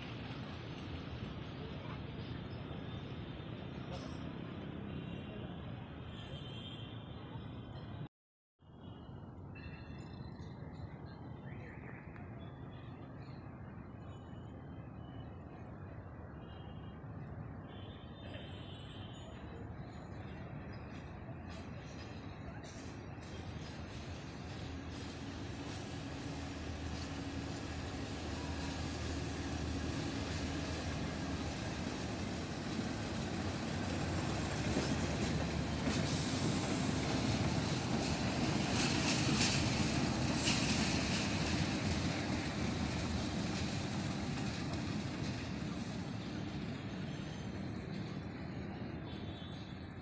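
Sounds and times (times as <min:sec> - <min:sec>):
train wheels rumbling on rails: 0:00.0 - 0:05.8, 0:19.4 - 0:50.0
diesel locomotives passing: 0:00.0 - 0:08.1, 0:08.7 - 0:50.0.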